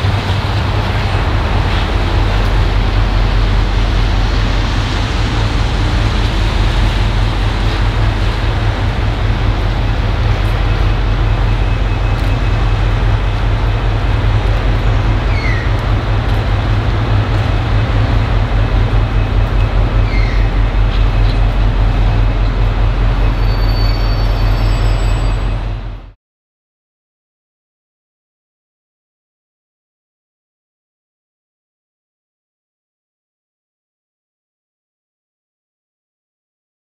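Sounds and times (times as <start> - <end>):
diesel locomotive engine throbbing: 0.0 - 26.2.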